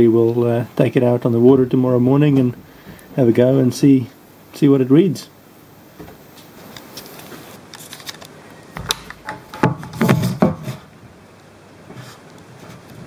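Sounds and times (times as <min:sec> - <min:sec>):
camera handling noise: 0:06.7 - 0:09.4
knocks and rubbing: 0:08.8 - 0:10.9.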